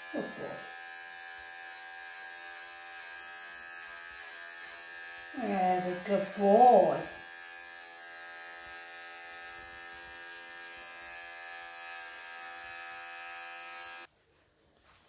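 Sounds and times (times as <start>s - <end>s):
electric clippers buzzing: 0.0s - 14.1s.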